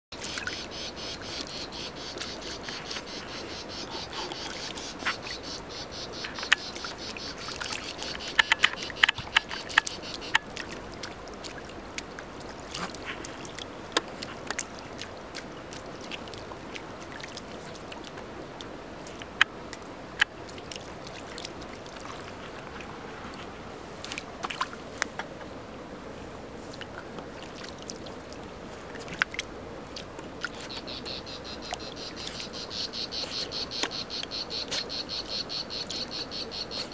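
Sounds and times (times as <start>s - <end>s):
insects trilling: 0.2s - 10.5s, 30.4s - 36.9s
splashes in shallow water: 0.2s - 25.2s.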